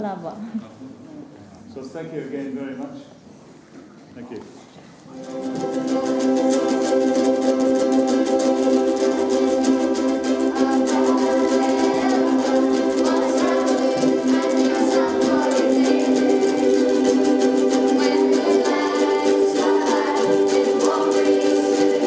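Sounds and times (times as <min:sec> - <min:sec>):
ukuleles strummed together: 0:05.1 - 0:22.0.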